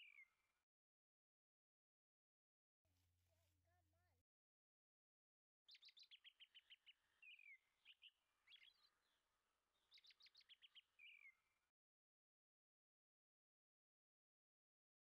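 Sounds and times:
bird chirps: 0:00.0 - 0:00.4, 0:05.7 - 0:11.5
songbird song: 0:00.0 - 0:00.7, 0:05.7 - 0:11.8.

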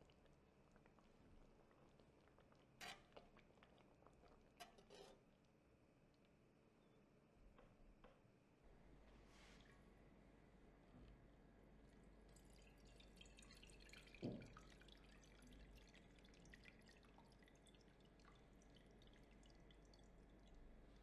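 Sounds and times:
sauce dripping through sieve: 0:11.9 - 0:21.0.

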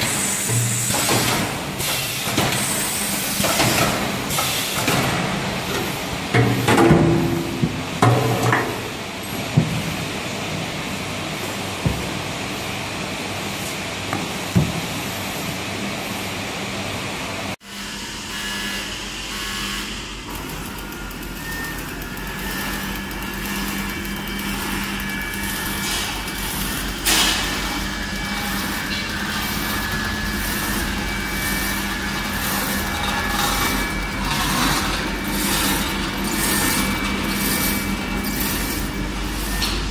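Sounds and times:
packing machine humming: 0:17.3 - 0:39.9
machine cutting and sealing strokes: 0:17.7 - 0:39.9
loud machine clack: 0:20.2 - 0:39.9.

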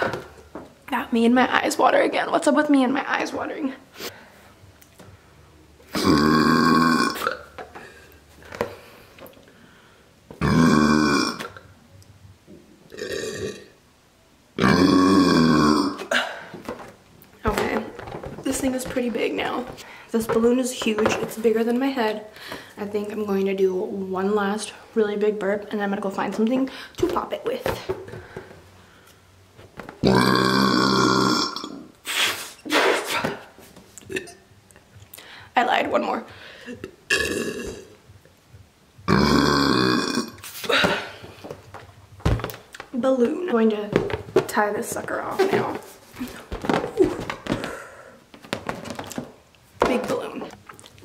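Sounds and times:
woman burping into balloon: 0:05.9 - 0:07.9, 0:10.3 - 0:11.7, 0:12.9 - 0:13.8, 0:14.6 - 0:16.9, 0:30.0 - 0:31.9, 0:34.0 - 0:34.5, 0:36.7 - 0:38.0, 0:39.1 - 0:41.3.

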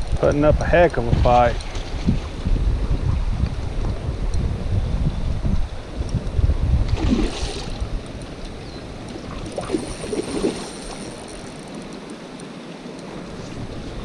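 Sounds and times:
wind buffeting microphone: 0:00.0 - 0:14.0
stream water running: 0:06.8 - 0:14.0
short water splashes: 0:06.9 - 0:08.0, 0:09.2 - 0:11.8.

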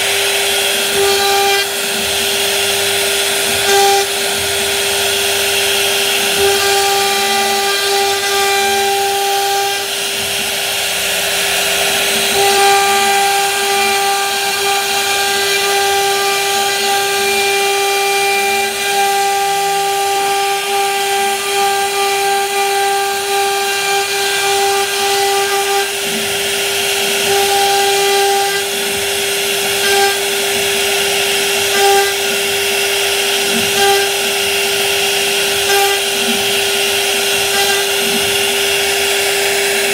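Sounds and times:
bit cutting wood: 0:00.0 - 0:39.9
router spindle whining: 0:00.0 - 0:39.9.

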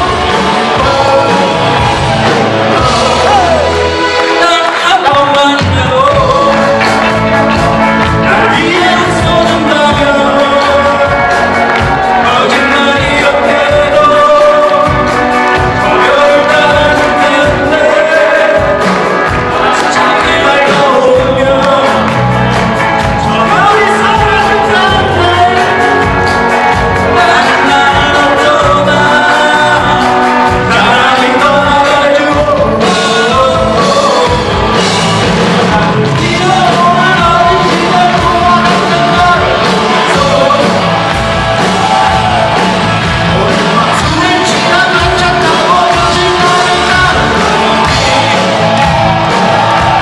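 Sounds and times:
live rock band playing: 0:00.0 - 0:50.0
person singing: 0:00.0 - 0:50.0.

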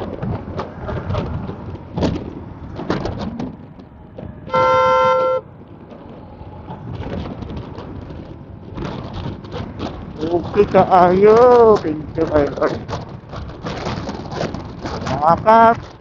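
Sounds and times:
road and wind noise: 0:00.0 - 0:16.0
vehicle horn toot: 0:04.5 - 0:05.5.

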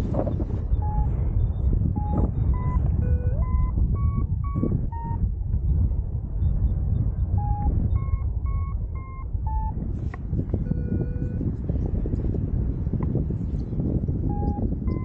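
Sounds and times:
long low steady tone: 0:00.0 - 0:15.0
wind rushing over microphone: 0:00.0 - 0:15.0
variometer short beeps: 0:00.2 - 0:05.3, 0:07.3 - 0:11.5, 0:14.2 - 0:15.0.

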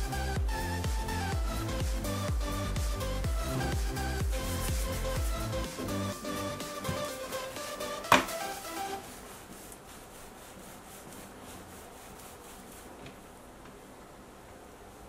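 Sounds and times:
background music: 0:00.0 - 0:09.1
palms rolling dough on mat: 0:03.4 - 0:13.9.

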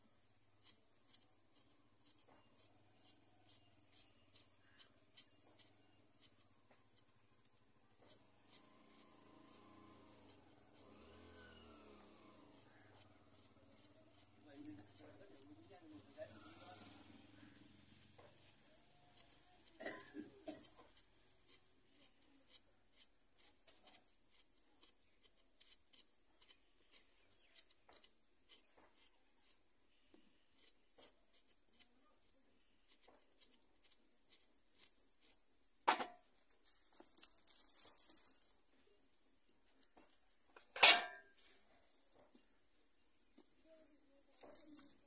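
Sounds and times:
rustling scrape: 0:32.6 - 0:38.7, 0:39.7 - 0:42.7, 0:43.3 - 0:45.0.

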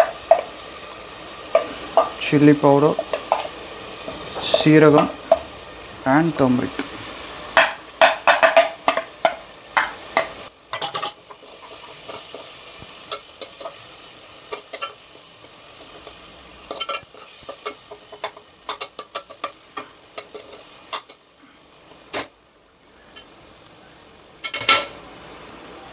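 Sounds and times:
spoon scraping a pan: 0:00.0 - 0:05.6, 0:06.7 - 0:21.3
low sizzle: 0:00.0 - 0:25.9.

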